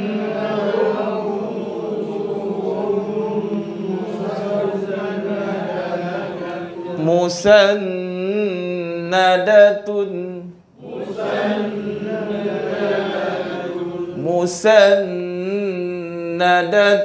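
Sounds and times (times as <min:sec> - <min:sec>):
group of voices chanting: 0:00.0 - 0:07.1, 0:10.8 - 0:14.3.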